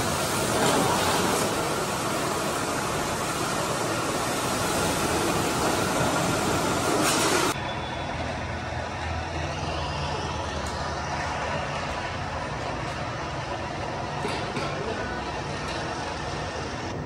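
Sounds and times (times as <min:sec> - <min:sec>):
pressure washer spraying water: 0:00.0 - 0:07.6.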